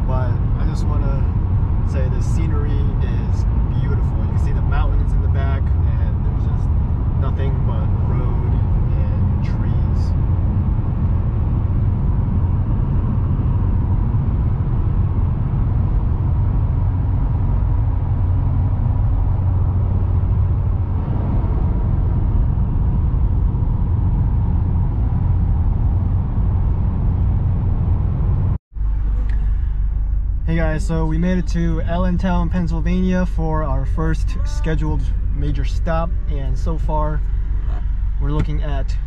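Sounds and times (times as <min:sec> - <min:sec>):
car engine drone: 0:00.0 - 0:39.0
tyre and road noise: 0:00.0 - 0:39.0.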